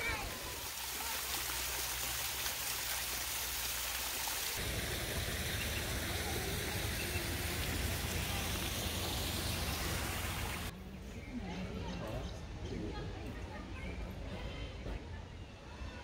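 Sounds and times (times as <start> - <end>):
water rushing from waterfall: 0.0 - 10.7.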